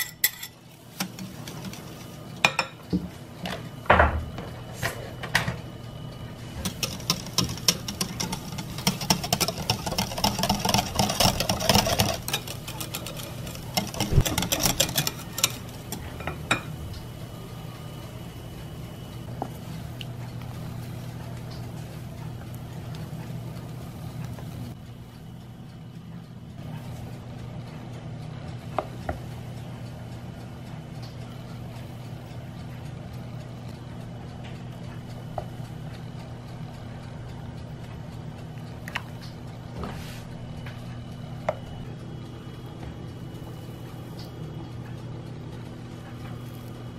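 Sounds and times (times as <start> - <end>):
wire whisk clattering in glass bowl: 0.0 - 2.8, 6.6 - 16.7
steady low hum: 0.0 - 46.9.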